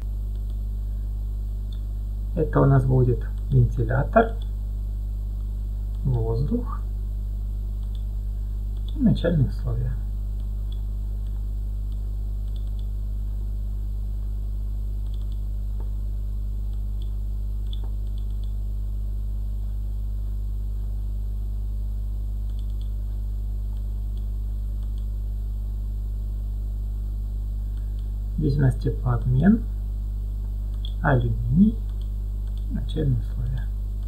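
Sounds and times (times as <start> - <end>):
electrical mains hum: 0.0 - 34.0
faint mouse clicks: 0.3 - 0.6, 7.8 - 8.1, 8.7 - 9.0, 10.4 - 12.9, 15.0 - 15.9, 16.7 - 18.6, 22.4 - 23.0, 23.7 - 25.1, 30.4 - 31.0, 31.8 - 32.7.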